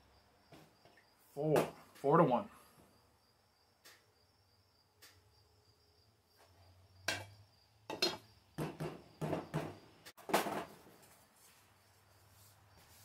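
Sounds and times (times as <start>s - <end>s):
cups knocking on workbench: 7.9s - 10.6s.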